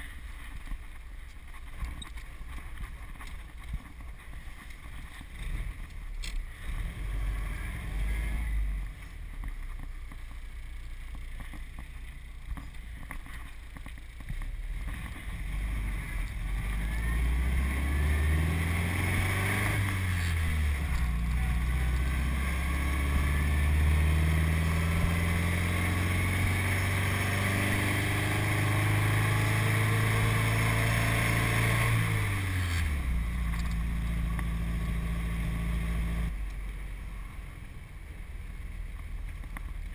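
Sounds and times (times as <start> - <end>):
car engine while driving: 0.0 - 39.9.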